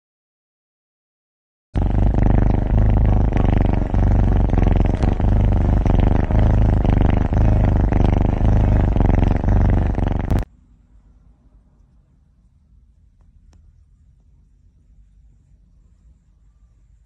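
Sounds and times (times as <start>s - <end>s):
kitten purring: 1.8s - 10.5s.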